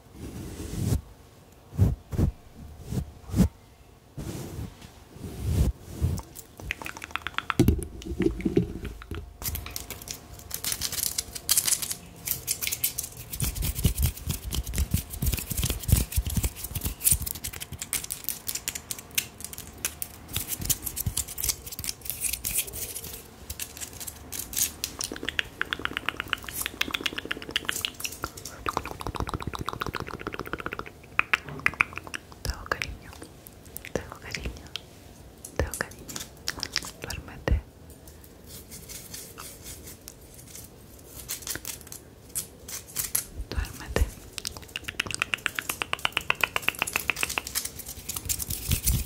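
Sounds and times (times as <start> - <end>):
fast tapping and clicking: 6.6 - 9.3, 25.0 - 32.4, 44.4 - 47.7.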